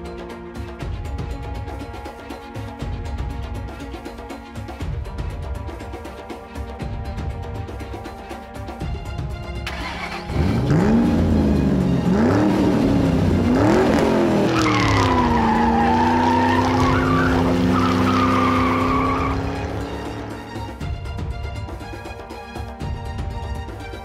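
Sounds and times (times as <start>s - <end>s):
sports car engine revving: 10.2s - 20.5s
tyre squeal: 14.5s - 19.9s.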